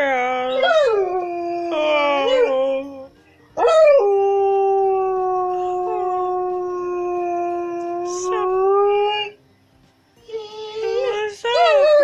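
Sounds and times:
dog howling: 0:00.4 - 0:02.9, 0:03.6 - 0:09.3, 0:10.2 - 0:12.0.

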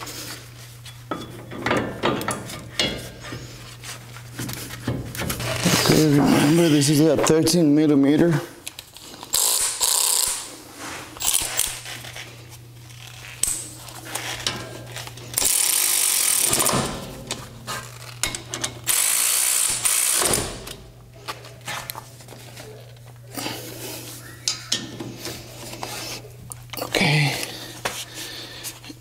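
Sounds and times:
ratchet clicking: 0:09.3 - 0:10.5, 0:15.4 - 0:16.7, 0:18.0 - 0:20.5.

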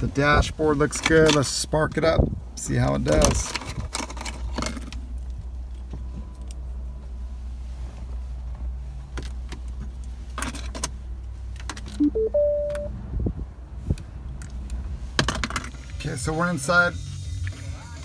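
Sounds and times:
clicks and rattles in car: 0:03.0 - 0:06.0, 0:09.1 - 0:12.0
rising electronic beeps: 0:12.0 - 0:12.9.

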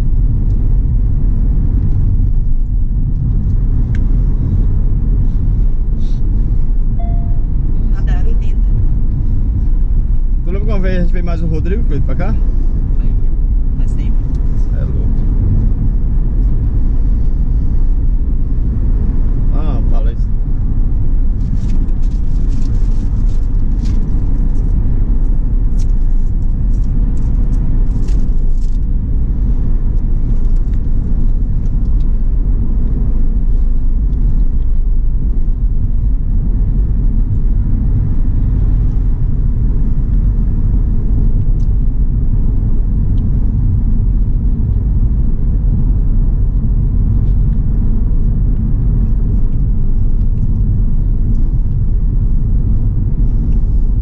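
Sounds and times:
car cabin road rumble: 0:00.0 - 0:54.0.

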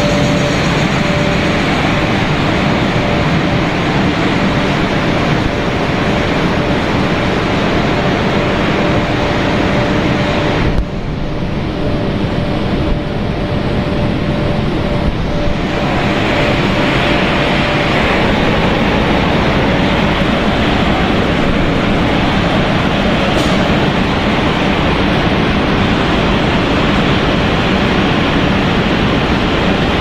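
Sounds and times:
constant high tone: 0:00.0 - 0:07.9
machinery hum: 0:00.0 - 0:30.0.

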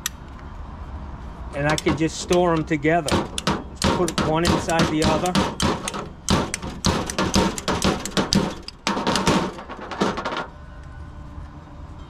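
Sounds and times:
hand tools and pipes clattering: 0:01.6 - 0:10.5.

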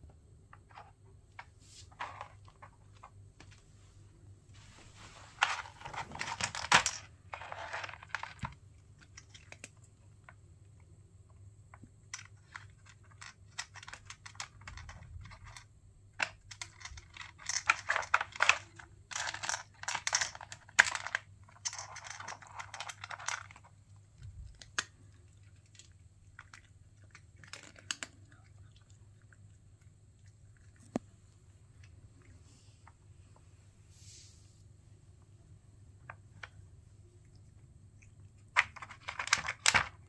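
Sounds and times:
cats crunching treats: 0:12.0 - 0:33.4, 0:36.2 - 0:40.0.

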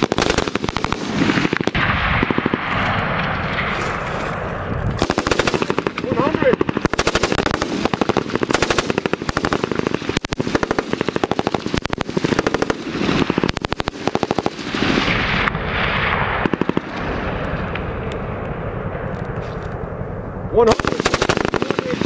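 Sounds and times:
machine gun automatic fire: 0:00.0 - 0:03.1, 0:05.0 - 0:15.2, 0:16.4 - 0:17.0, 0:20.7 - 0:22.0.

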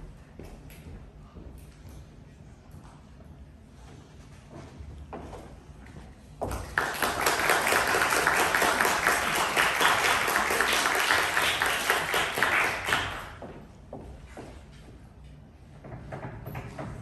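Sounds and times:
audience applauding: 0:06.5 - 0:13.4.

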